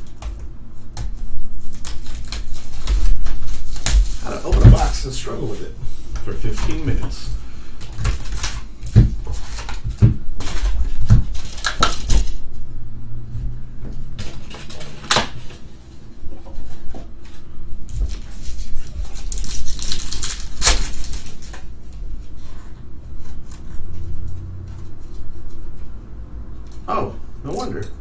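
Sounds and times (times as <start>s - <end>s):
wrapper torn open crinkling: 19.0s - 21.7s.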